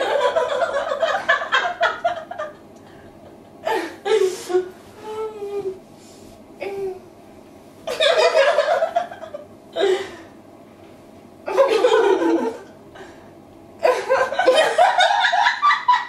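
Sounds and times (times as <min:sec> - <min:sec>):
women laughing: 0:00.0 - 0:04.7, 0:07.9 - 0:09.5, 0:11.5 - 0:12.7, 0:13.8 - 0:16.0.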